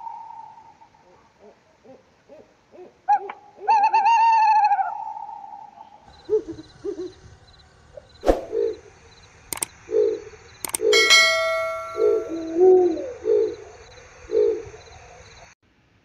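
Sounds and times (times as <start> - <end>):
owl hooting: 1.4 - 7.2, 9.9 - 15.2
sharp click: 9.5 - 9.7, 10.6 - 12.4.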